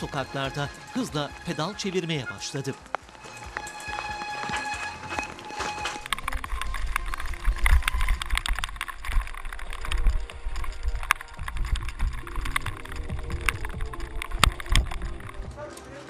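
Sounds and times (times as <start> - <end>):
bike rattling over stones: 0.0 - 16.0
wind buffeting the microphone: 6.4 - 15.6.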